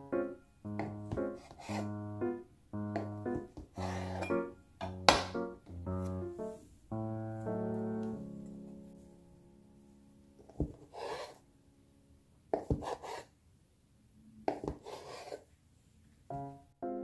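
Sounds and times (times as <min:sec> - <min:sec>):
knife tapping plastic cutting board: 0:04.8 - 0:05.4
knife cutting through dough: 0:10.5 - 0:11.4, 0:12.5 - 0:13.3, 0:14.5 - 0:15.4
short rustling scrape: 0:10.8 - 0:11.4.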